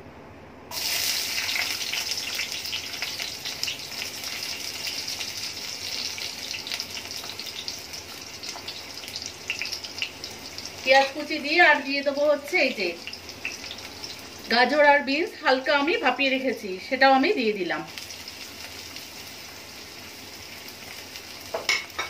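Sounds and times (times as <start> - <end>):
onions sizzling in hot oil: 0.7 - 16.5, 17.3 - 22.0.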